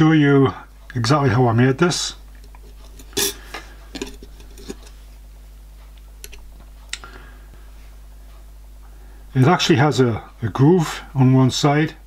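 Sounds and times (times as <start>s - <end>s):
metal plate clinking: 2.6s - 5.0s.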